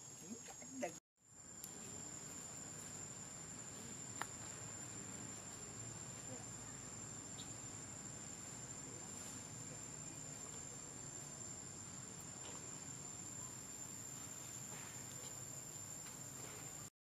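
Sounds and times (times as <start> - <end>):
insects droning: 0.0 - 16.9.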